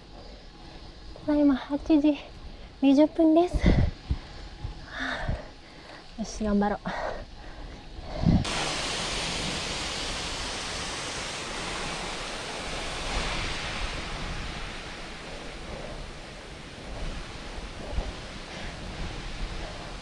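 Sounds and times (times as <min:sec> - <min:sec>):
air rushing over microphone: 0:08.0 - 0:20.0.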